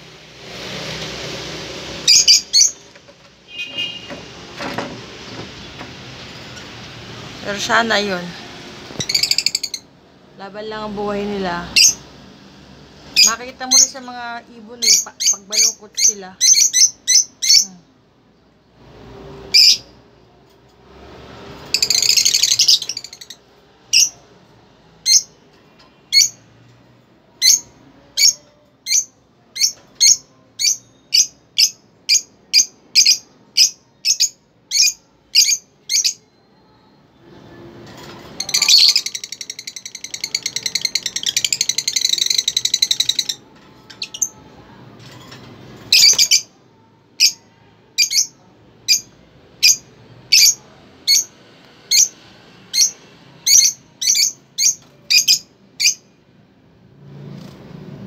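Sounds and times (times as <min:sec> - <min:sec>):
lovebirds chirping: 0:02.0 - 0:02.9, 0:08.9 - 0:12.0, 0:13.1 - 0:17.8, 0:21.7 - 0:24.2, 0:27.4 - 0:36.8, 0:38.4 - 0:44.4, 0:45.9 - 0:46.5, 0:51.9 - 0:56.0.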